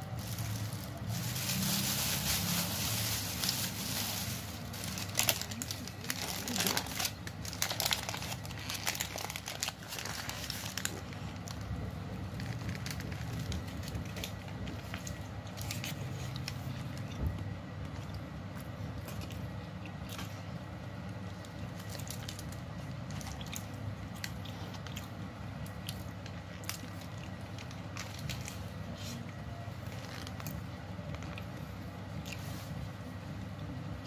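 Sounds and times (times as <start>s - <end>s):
paper wrapper rustling: 0.0s - 17.0s, 29.8s - 31.4s
plastic bag crinkling: 0.0s - 17.5s, 21.2s - 25.0s, 25.8s - 29.2s, 29.8s - 32.8s
low background hum: 0.0s - 34.0s.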